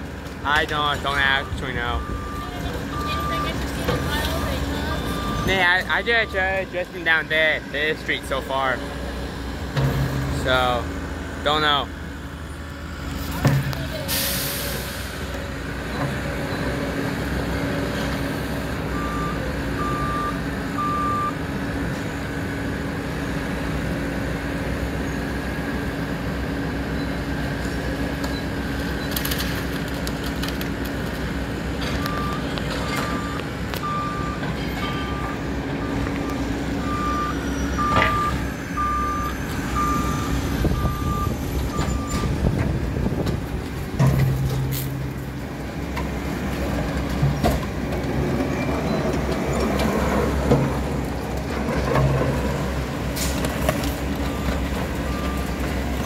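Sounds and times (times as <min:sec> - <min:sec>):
diesel engine running: 0:00.0 - 0:56.0
backup alarm beeping: 0:01.1 - 0:06.7, 0:32.0 - 0:42.5.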